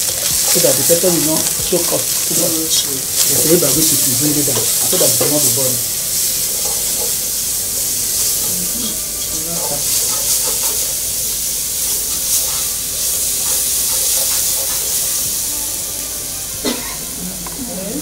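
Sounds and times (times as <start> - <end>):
vegetables sizzling in a pan: 0.0 - 18.0
spoon stirring and scraping: 6.1 - 7.2, 11.9 - 15.3.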